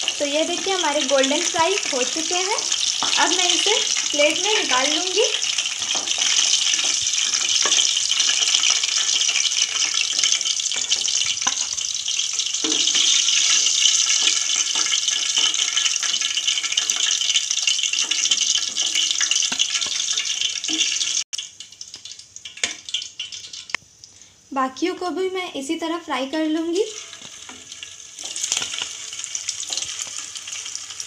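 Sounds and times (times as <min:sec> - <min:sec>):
food sizzling in hot oil: 0:00.0 - 0:31.0.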